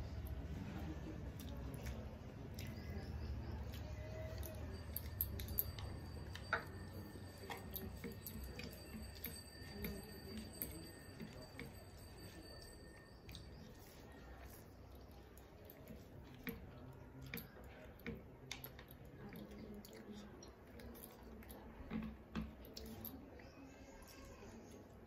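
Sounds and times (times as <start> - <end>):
chewing: 0.0 - 25.0
low steady hum: 0.0 - 25.0
small clicks and smacks: 14.9 - 23.3.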